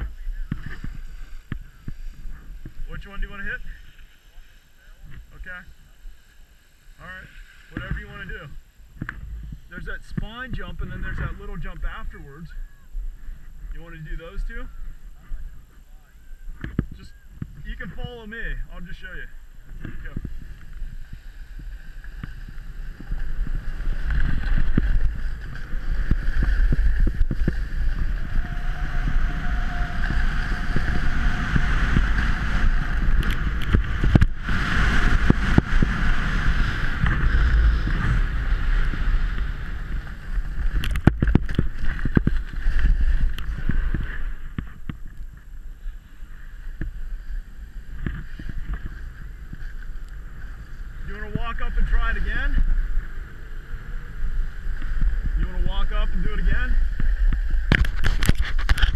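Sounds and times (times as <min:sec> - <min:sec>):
snowboard scraping over snow: 0:00.0 - 0:12.2, 0:16.6 - 0:58.9
wind buffeting microphone: 0:07.7 - 0:58.9.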